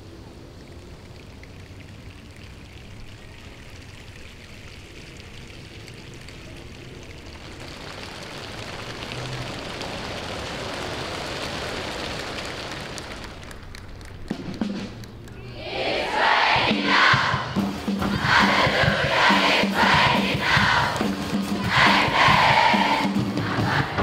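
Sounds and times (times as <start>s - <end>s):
crowd hissing and rustling: 5.4s - 24.0s
sharp claps or snaps: 7.4s - 15.4s.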